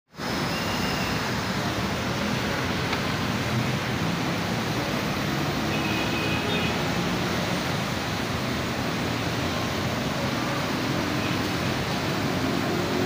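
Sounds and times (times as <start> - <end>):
heavy rain on road: 0.1 - 13.0
vehicles driving on wet road: 0.1 - 13.0.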